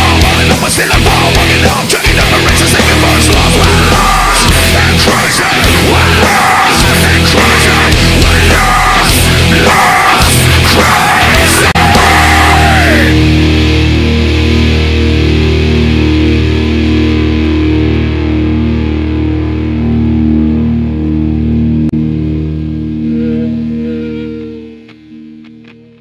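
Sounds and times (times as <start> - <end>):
rock music with electric guitar: 0.0 - 26.0.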